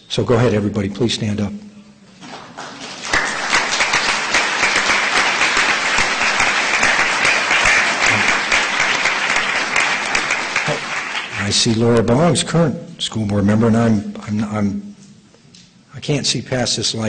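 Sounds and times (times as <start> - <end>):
audience applauding: 2.2 - 11.7.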